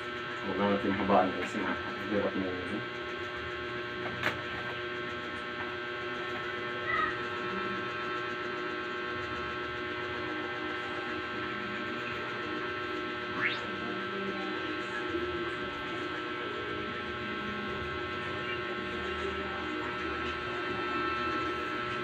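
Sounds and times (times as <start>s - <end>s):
electrical hum: 0.0s - 22.0s.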